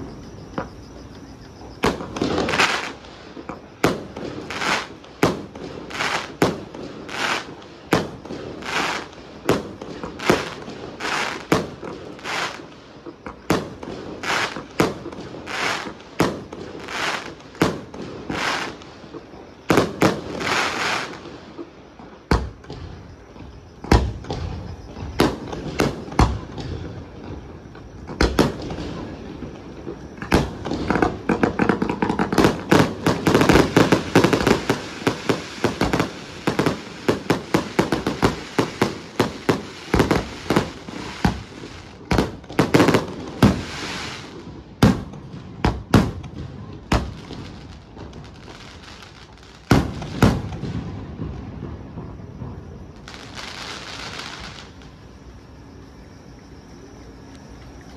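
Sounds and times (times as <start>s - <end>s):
firework shells bursting: 30.2s - 46.3s.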